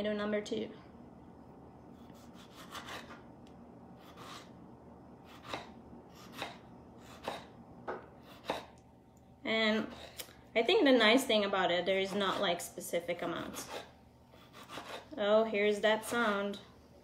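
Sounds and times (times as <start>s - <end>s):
knife slicing on cutting board: 8.2s - 8.7s.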